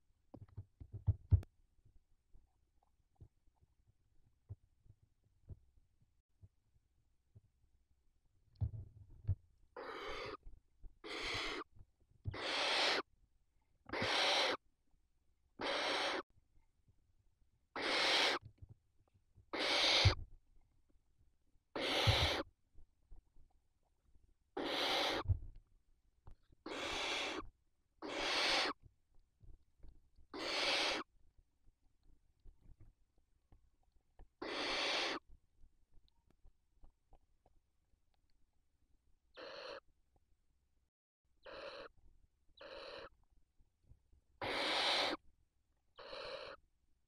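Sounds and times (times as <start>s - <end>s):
soft low thumps: 0.9s - 1.5s
owl chicks hissing calls: 9.8s - 10.4s, 11.0s - 11.7s, 12.3s - 13.1s, 13.9s - 14.6s, 15.6s - 16.2s, 17.7s - 18.4s, 19.5s - 20.2s, 21.8s - 22.5s, 24.6s - 25.3s, 26.6s - 28.8s, 30.3s - 31.1s, 34.4s - 35.3s, 39.3s - 39.8s, 41.4s - 41.9s, 42.6s - 43.1s, 44.4s - 45.2s, 46.0s - 46.6s.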